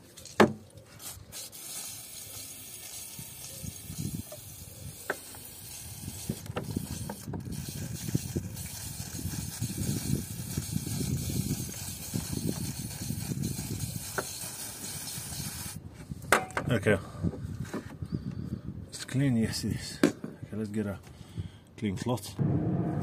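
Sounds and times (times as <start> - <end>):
aerosol spray hissing: 1.0 - 15.8.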